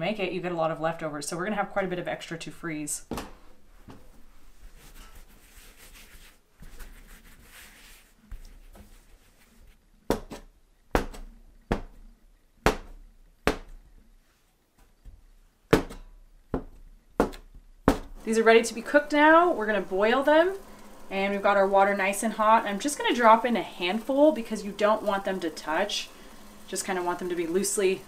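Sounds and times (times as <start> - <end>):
dough rubbing by hand: 4.3 - 9.9.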